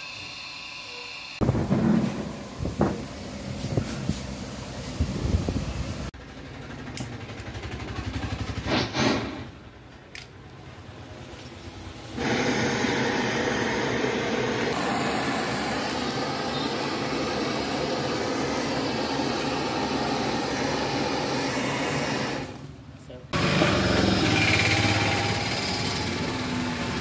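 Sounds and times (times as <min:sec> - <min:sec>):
blowtorch flame hissing: 0:00.9 - 0:06.2, 0:12.1 - 0:22.7.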